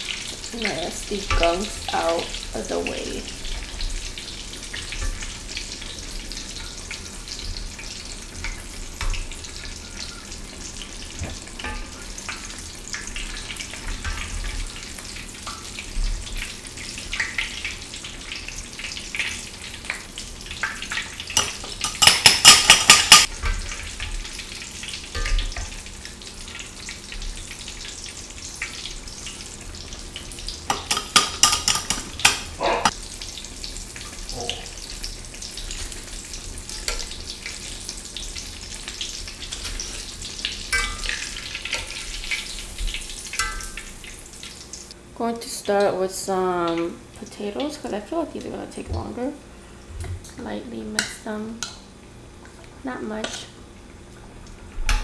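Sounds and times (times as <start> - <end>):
food sizzling in hot oil: 0.0 - 45.0.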